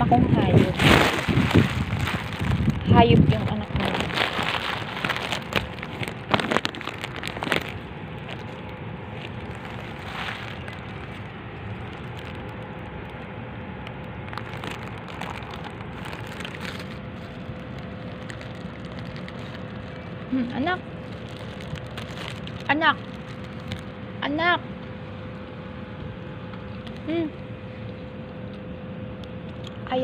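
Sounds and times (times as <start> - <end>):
low background hiss and rumble: 0.0 - 30.0
clicks and rustles: 0.7 - 24.0.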